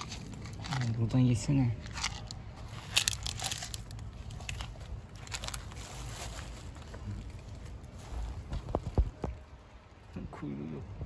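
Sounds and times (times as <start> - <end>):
plastic bag crinkling: 1.8 - 6.8.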